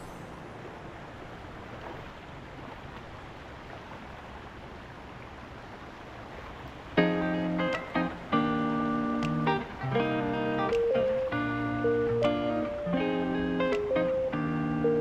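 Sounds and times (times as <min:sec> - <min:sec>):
stream running over rocks: 0:00.0 - 0:14.4
strummed acoustic guitar music: 0:07.0 - 0:15.0.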